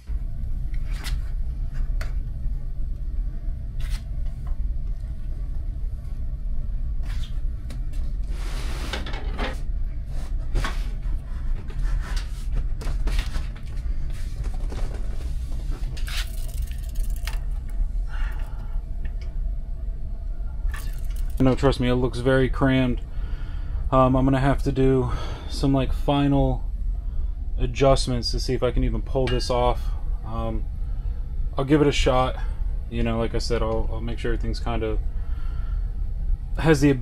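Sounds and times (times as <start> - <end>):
low rumble: 0.0 - 37.0
parts clicking and knocking: 16.0 - 17.7.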